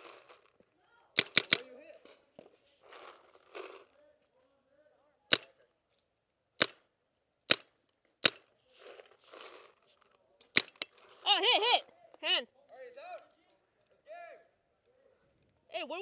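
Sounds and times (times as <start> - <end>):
paintball marker shots: 1.2 - 1.8, 5.3 - 5.6, 6.6 - 8.5, 10.5 - 11.0.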